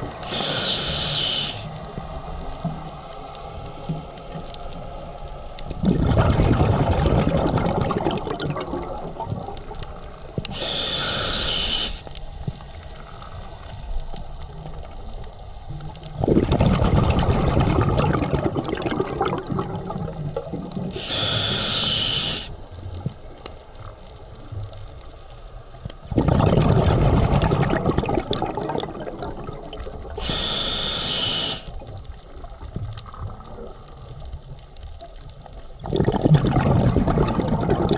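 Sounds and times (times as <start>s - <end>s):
regulator inhale hiss: 0.2s - 1.9s, 10.4s - 12.2s, 20.9s - 22.6s, 30.2s - 31.8s
exhaled bubbles rushing: 5.7s - 11.2s, 16.1s - 22.5s, 26.0s - 31.6s, 35.8s - 37.9s.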